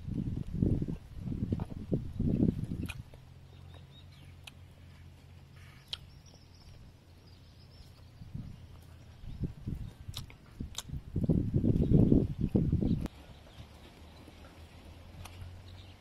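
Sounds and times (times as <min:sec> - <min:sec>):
person chewing: 0:00.4 - 0:11.3.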